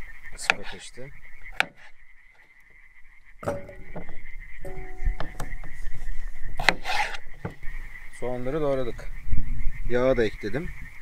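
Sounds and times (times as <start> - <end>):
metal cookware clanking: 3.4 - 6.0
pot knocks with ringing tone: 3.4 - 6.0.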